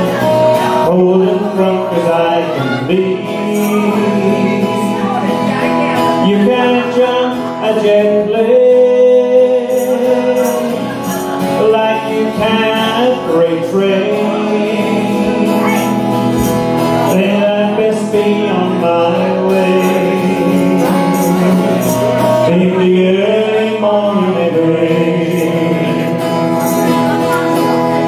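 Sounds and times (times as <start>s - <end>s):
acoustic guitar strumming: 0.0s - 28.0s.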